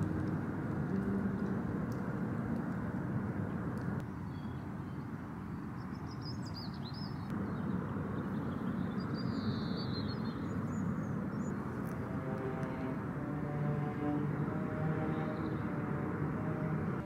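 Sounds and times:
steady low rumble: 0.0s - 4.1s, 10.8s - 17.0s
small birds chirping: 3.5s - 12.0s.

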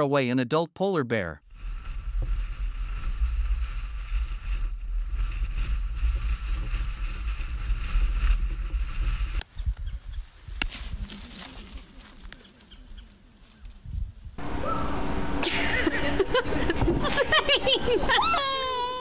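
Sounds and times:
wind buffeting microphone: 1.5s - 15.0s.

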